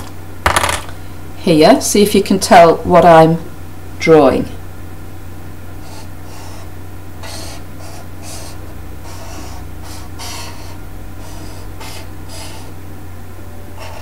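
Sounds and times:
steady low hum: 0.0 - 14.0
marker scratching on paper: 5.8 - 12.7, 13.8 - 14.0.

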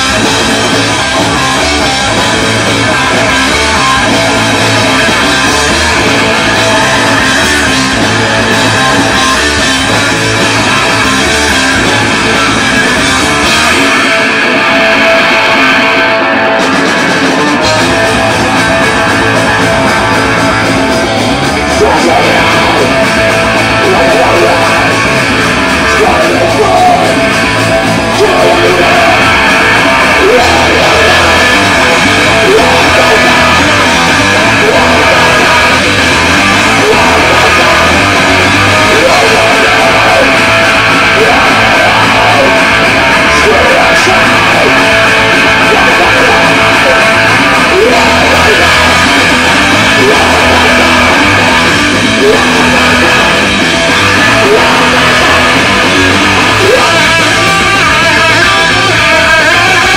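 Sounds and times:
drum kit with cymbals: 0.0 - 15.2
electric bass: 0.0 - 59.9
electric guitar: 0.0 - 59.9.

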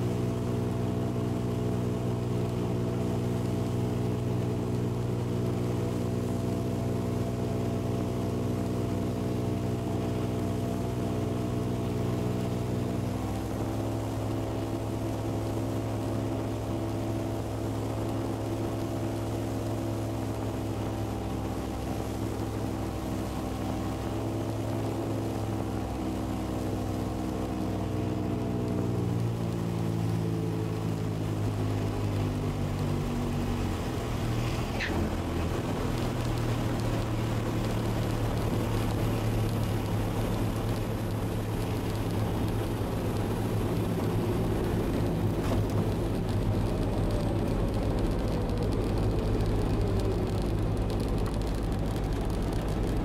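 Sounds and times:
light aircraft engine droning: 0.0 - 53.0.

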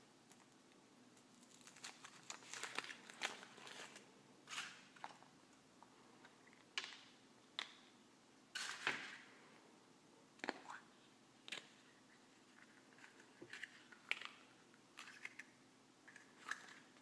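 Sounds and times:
foil wrapper crinkling: 1.2 - 4.8.

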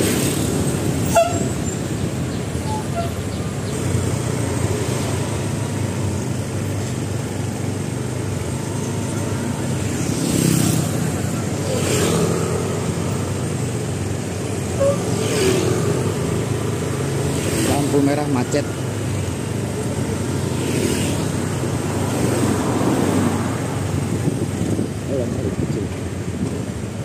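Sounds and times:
traffic engine and road noise: 0.0 - 27.0
vehicles passing: 0.0 - 27.0.

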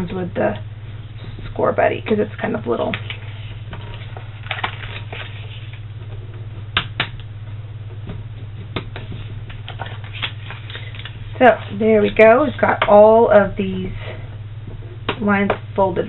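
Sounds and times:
steady low hum: 0.0 - 16.0
cardstock paper rustling: 2.9 - 5.8, 8.9 - 11.3.

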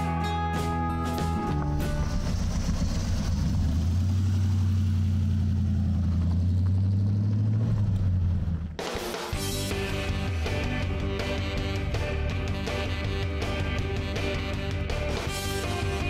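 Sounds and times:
car engine rumbling: 1.4 - 8.8.

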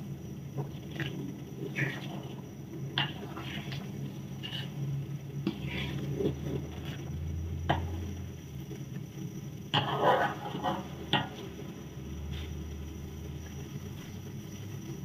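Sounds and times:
spatula scraping a wok: 0.6 - 8.1, 9.7 - 12.7.

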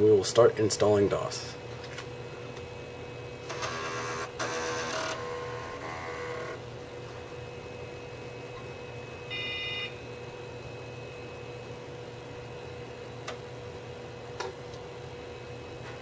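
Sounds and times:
computer hum: 2.2 - 15.8
floppy disk drive motor whirring: 3.4 - 6.6.

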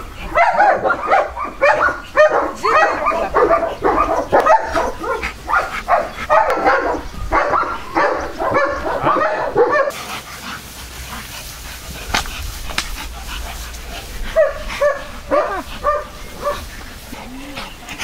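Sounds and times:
dog barking and yelping: 0.2 - 10.0, 14.2 - 18.0.

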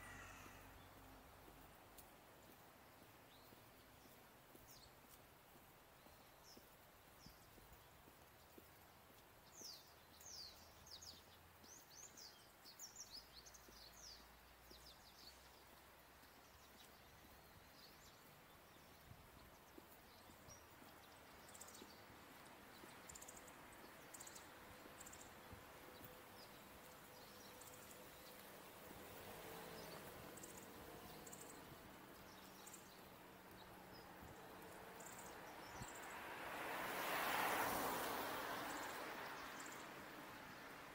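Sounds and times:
faint steady hiss: 0.0 - 40.9
bird chirping: 9.4 - 36.1.

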